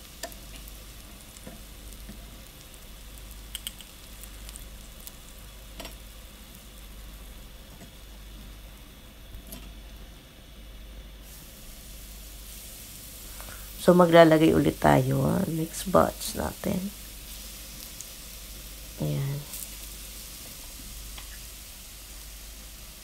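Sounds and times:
oil sizzling in a frying pan: 0.0s - 23.0s
tongs clicking: 3.5s - 3.9s.

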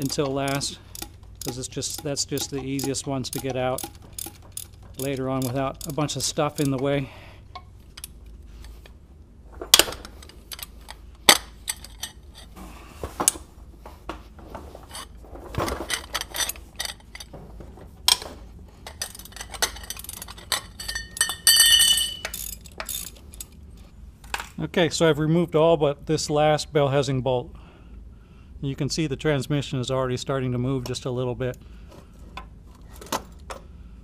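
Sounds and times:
metal tools and bolts clinking: 0.0s - 8.9s, 9.7s - 12.6s, 14.8s - 24.5s.

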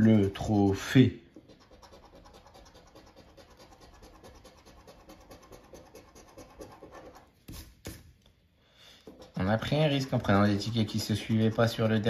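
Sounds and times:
scratch card scraping: 1.4s - 7.8s, 9.0s - 12.0s.

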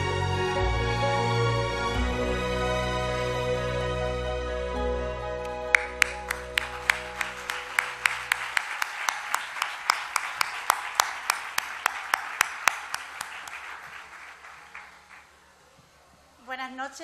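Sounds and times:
music: 0.0s - 13.5s
single steady clap: 5.4s - 15.3s
audience applauding: 5.5s - 15.6s.

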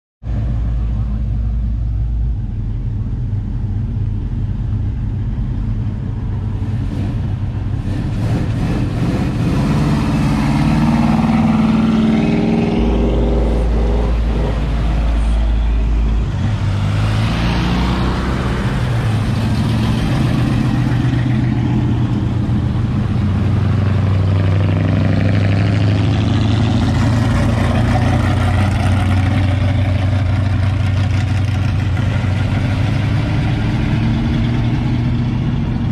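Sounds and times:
cars driving past: 0.3s - 35.9s.

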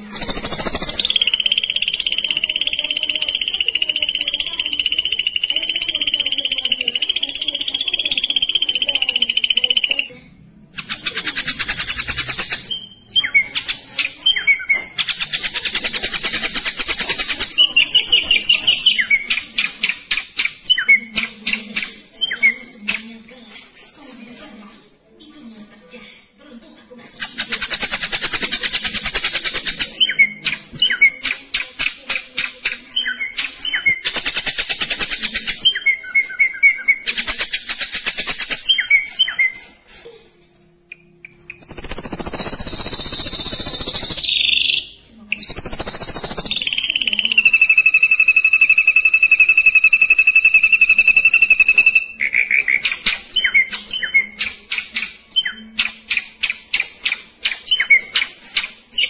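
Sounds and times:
bird rattling trills: 0.1s - 10.0s, 41.5s - 44.6s, 45.4s - 52.1s
bird high whistles: 41.5s - 52.7s.

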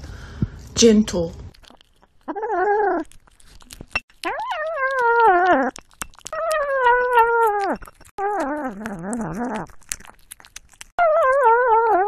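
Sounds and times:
wet licking and chewing clicks: 1.5s - 11.4s
kitten humming growls: 2.2s - 3.2s, 4.2s - 12.0s.

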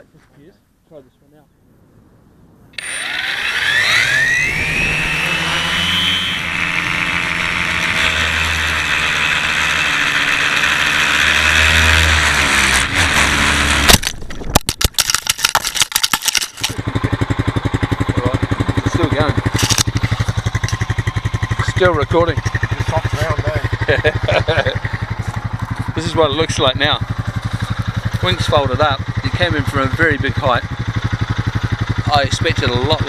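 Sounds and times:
drone crashing knocks: 2.8s - 15.6s
drone motors whining: 2.8s - 16.8s, 18.8s - 29.5s.

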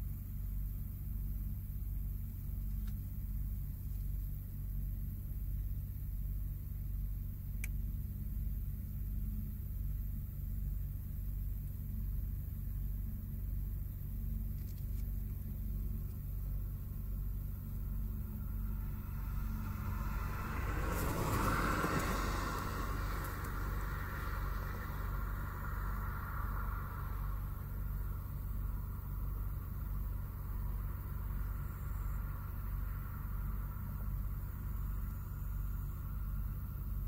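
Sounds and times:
distant farm engines droning: 0.0s - 37.0s
loud rushing noise: 19.0s - 27.2s.

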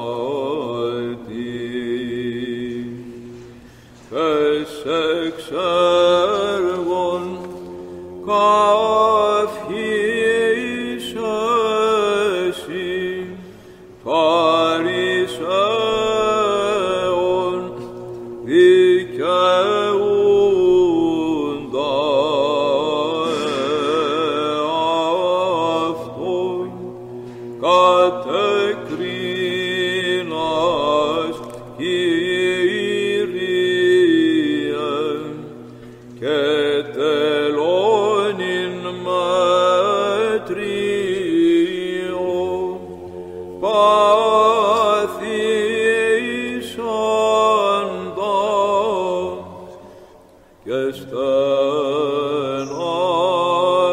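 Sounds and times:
low held vocal drone: 0.0s - 53.9s
men chanting melody: 14.1s - 49.4s.

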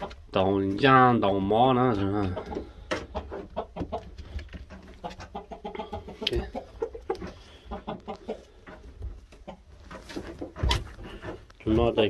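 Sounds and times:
rooster clucking: 2.0s - 11.4s.

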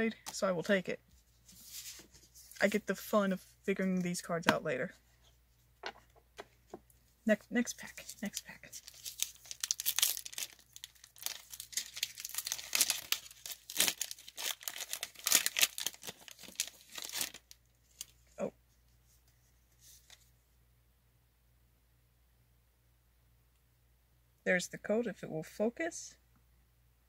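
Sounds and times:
foil wrapper tearing and crinkling: 8.2s - 18.1s.

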